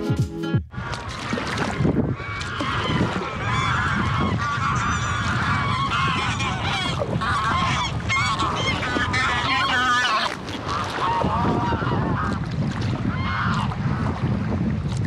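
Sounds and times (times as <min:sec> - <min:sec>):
geese honking: 0:02.2 - 0:12.4.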